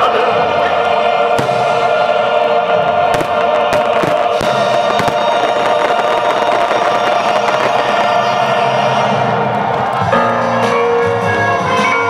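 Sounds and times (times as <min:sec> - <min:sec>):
choral song with accompaniment: 0:00.0 - 0:12.0
fireworks bangs: 0:01.3 - 0:10.0.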